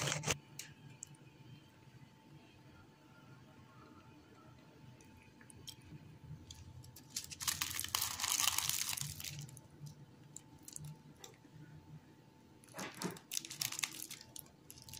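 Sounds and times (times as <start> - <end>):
pastry crunching and crackling: 6.4 - 11.4, 12.6 - 14.9
paper crinkling: 6.5 - 9.6, 12.6 - 14.9.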